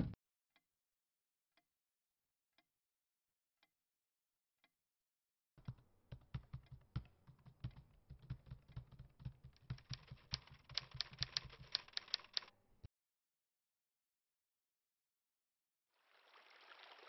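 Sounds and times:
typing on a laptop keyboard: 0:05.6 - 0:12.5.

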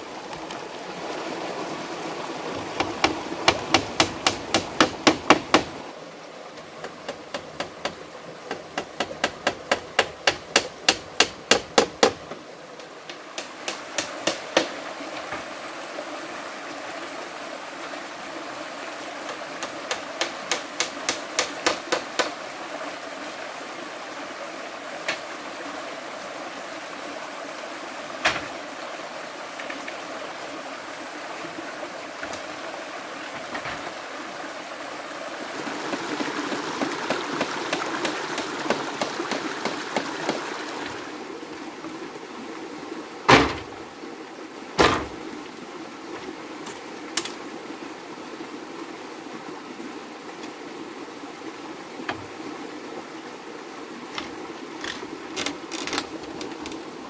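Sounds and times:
stream rushing: 0:00.0 - 0:57.0
hatchet knocking on bamboo: 0:02.8 - 0:05.8, 0:06.8 - 0:12.4, 0:13.1 - 0:14.8, 0:19.3 - 0:22.4, 0:36.8 - 0:40.5.

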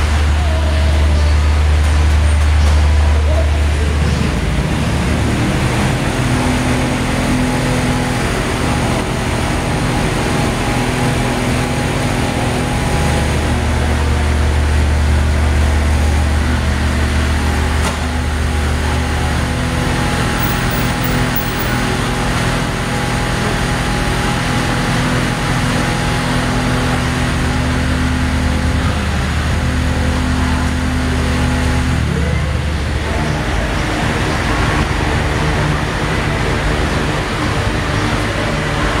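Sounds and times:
motorcycle engine idling: 0:19.7 - 0:22.1.

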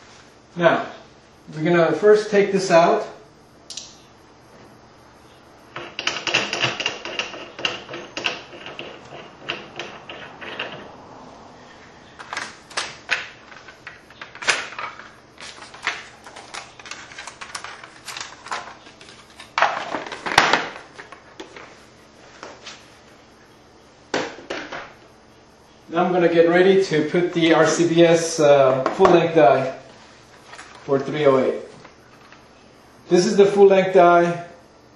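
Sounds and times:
metal parts clicking and rattling: 0:12.2 - 0:20.5.

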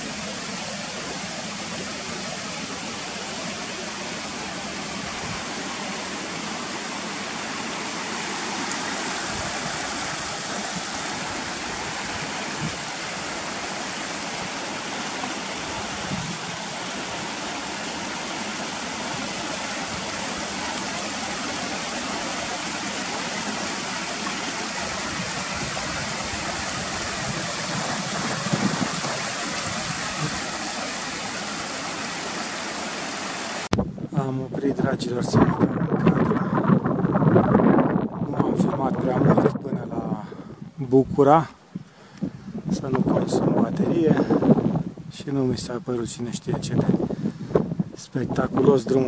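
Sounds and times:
stream rushing over rocks: 0:00.0 - 0:33.7.

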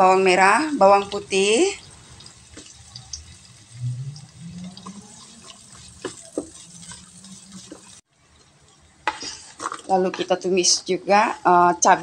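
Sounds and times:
shallots and garlic sizzling in oil: 0:00.0 - 0:12.0
wooden spatula knocking: 0:04.8 - 0:08.0.

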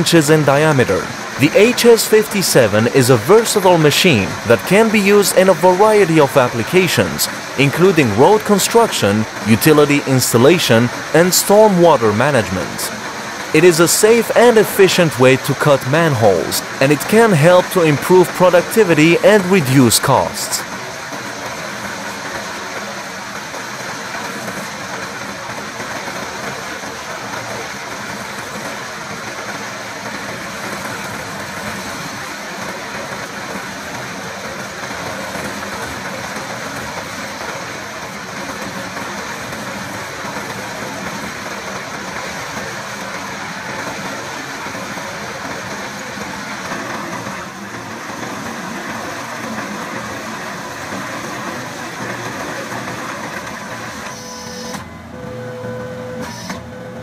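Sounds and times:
track loader diesel engine: 0:00.0 - 0:55.8.

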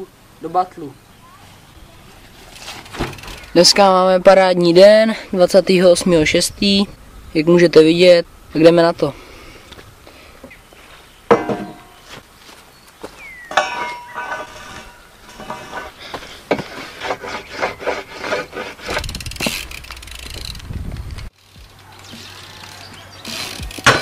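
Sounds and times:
low rumble: 0:05.2 - 0:10.0
metal rail clanking on wooden box: 0:11.3 - 0:12.0, 0:13.5 - 0:19.6, 0:23.7 - 0:24.0
rubbing strokes on wood: 0:14.2 - 0:20.4.

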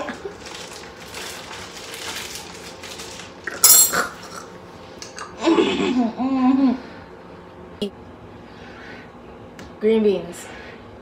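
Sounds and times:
metal spoon clinking on glass jar: 0:03.6 - 0:04.0.

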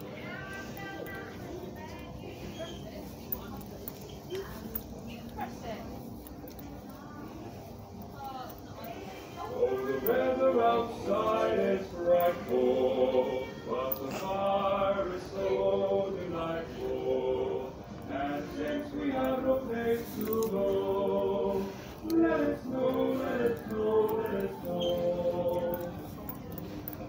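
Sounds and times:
choral singing: 0:09.4 - 0:26.6.

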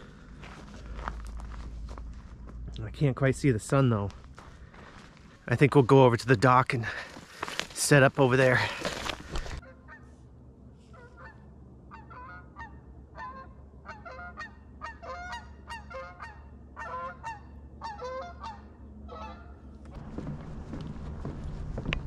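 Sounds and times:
geese honking: 0:10.9 - 0:19.7.

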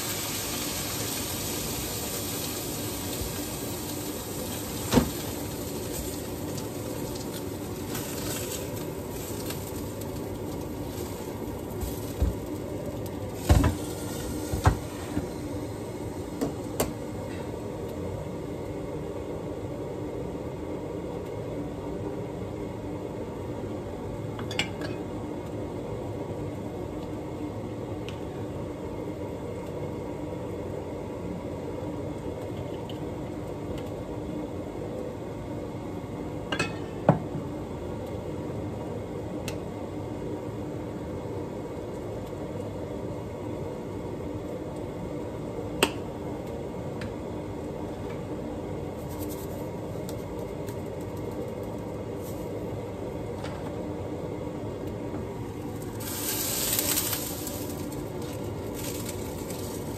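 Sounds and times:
kitchen background noise: 0:00.0 - 0:18.0, 0:24.3 - 0:25.2, 0:36.5 - 0:37.4, 0:48.9 - 0:53.8, 0:54.9 - 0:59.9.

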